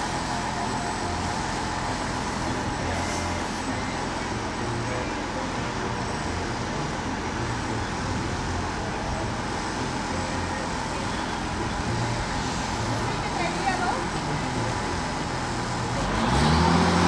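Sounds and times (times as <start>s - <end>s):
steady engine drone: 0.0s - 17.0s.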